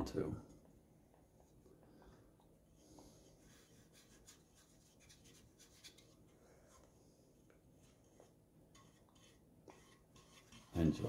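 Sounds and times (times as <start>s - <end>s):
paintbrush strokes on wood: 2.8s - 7.2s, 7.8s - 11.0s.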